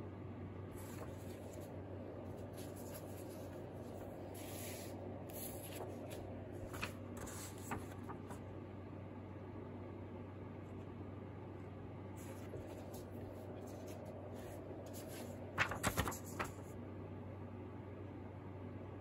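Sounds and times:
paper rustling and sliding on desk: 0:00.8 - 0:08.4, 0:12.2 - 0:16.7.

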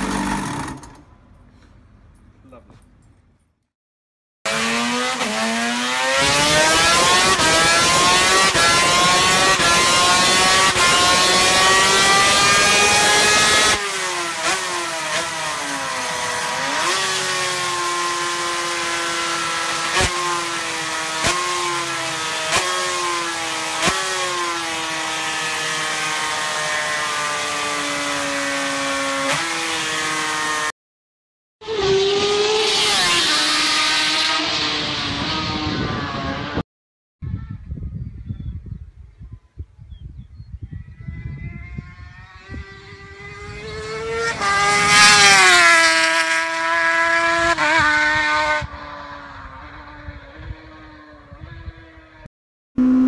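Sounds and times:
two-stroke engine revving: 0:00.0 - 0:01.1, 0:04.5 - 0:30.7, 0:31.6 - 0:36.6, 0:41.6 - 0:51.7.

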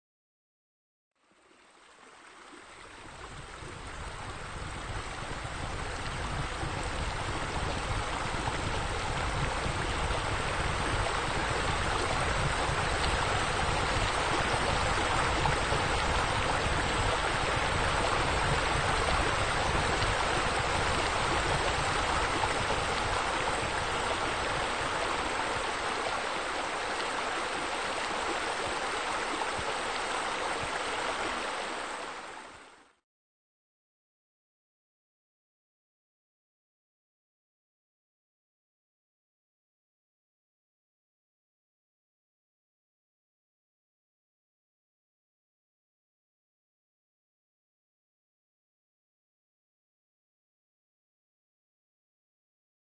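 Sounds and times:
running water: 0:01.2 - 0:33.0.

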